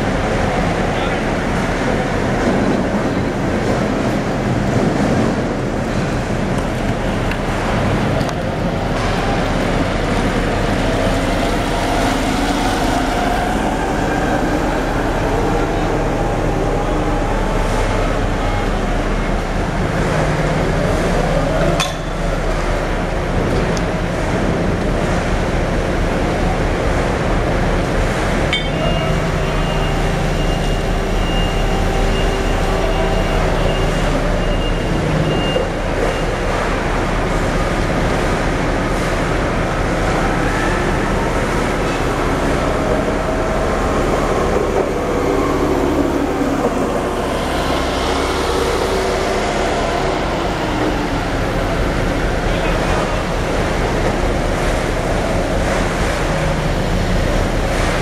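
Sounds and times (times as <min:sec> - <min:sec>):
ship machinery and crane winch: 0:00.0 - 0:58.0
sharp metal clank: 0:28.6 - 0:29.0.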